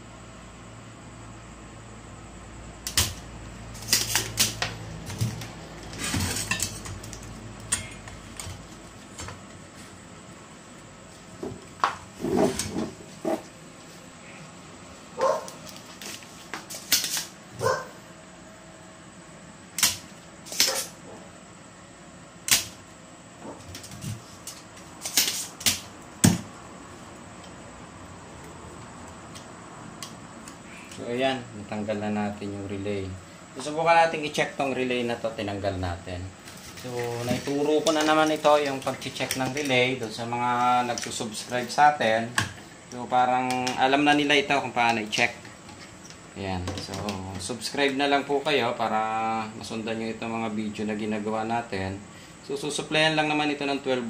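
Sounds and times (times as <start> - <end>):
desoldering pump snapping: 2.8 - 9.5, 19.7 - 20.9, 22.4 - 22.8, 23.7 - 26.6, 37.2 - 47.6.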